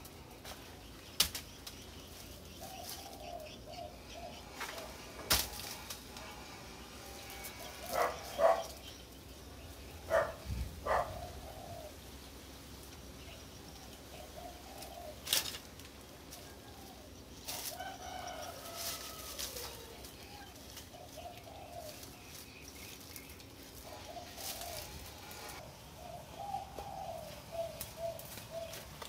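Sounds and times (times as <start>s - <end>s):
birds warbling: 0.0s - 29.0s
twigs snapping and rustling: 0.4s - 3.6s, 4.6s - 6.3s, 14.8s - 16.6s, 17.4s - 25.6s, 26.8s - 29.0s.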